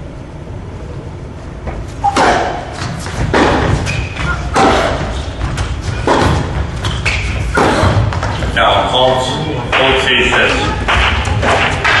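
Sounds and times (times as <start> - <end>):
tennis ball hits: 2.0 - 8.3.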